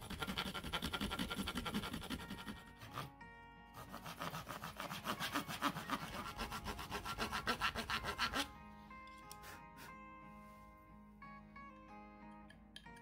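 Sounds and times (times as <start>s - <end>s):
hand saw cutting wood: 0.0s - 3.1s, 3.8s - 8.5s, 9.3s - 9.9s
background music: 0.0s - 13.0s.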